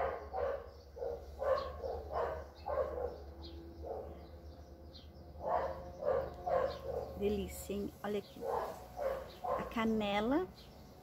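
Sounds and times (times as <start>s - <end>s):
dog barking: 0.0s - 4.2s, 5.4s - 7.2s, 8.4s - 9.8s.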